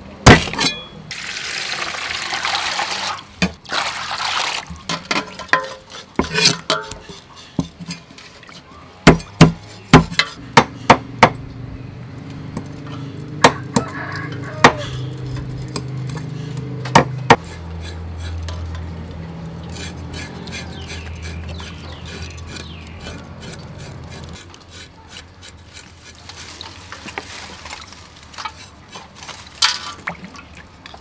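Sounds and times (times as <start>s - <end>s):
cleaver chopping fish on wood: 9.1s - 11.4s.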